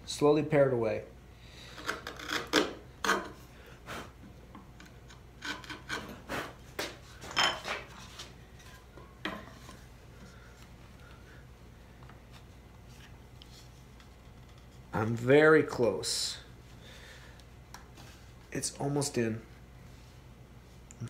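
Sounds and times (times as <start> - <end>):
chisel scraping wood: 4.8 - 6.3.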